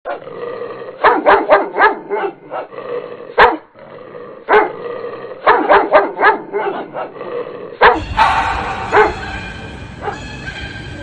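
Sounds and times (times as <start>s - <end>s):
dog barking: 1.0s - 2.7s, 3.4s - 3.7s, 4.5s - 4.8s, 5.4s - 7.2s, 7.8s - 11.0s.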